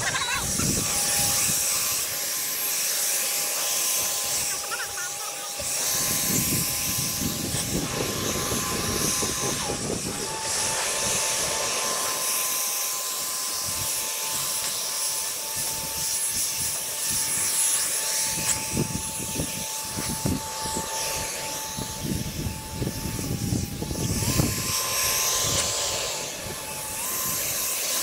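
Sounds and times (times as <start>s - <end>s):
electric motor whine: 0.0s - 28.0s
wind rumble on microphone: 5.9s - 11.5s, 18.3s - 20.9s, 21.6s - 25.7s.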